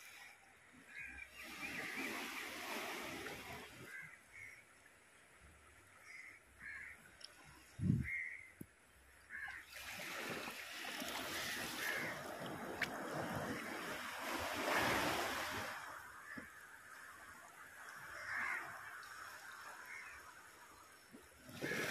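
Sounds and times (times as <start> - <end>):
crows cawing: 6.0 - 7.0, 8.0 - 8.5, 9.3 - 9.7, 11.7 - 12.3, 18.1 - 18.8
surf washing on rocks: 9.6 - 20.5, 21.2 - 21.9.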